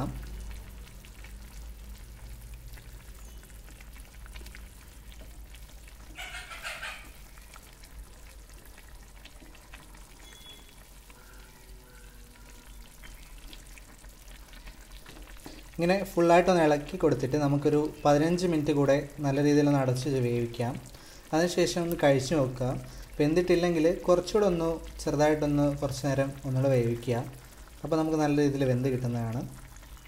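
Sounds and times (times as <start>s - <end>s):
curry sizzling in a pan: 0.0s - 30.0s.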